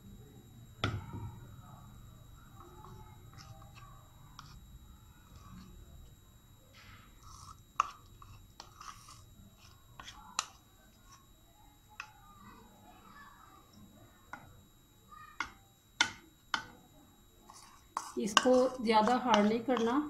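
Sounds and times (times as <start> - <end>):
metal spoon scraping bowl: 7.2 - 11.2, 17.5 - 20.0.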